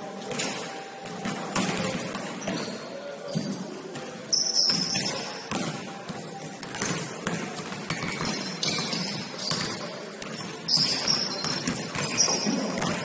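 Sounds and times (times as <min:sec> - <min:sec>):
sneaker squeaks: 0:00.2 - 0:05.6, 0:07.6 - 0:13.0
basketball bouncing on gym floor: 0:00.3 - 0:13.0.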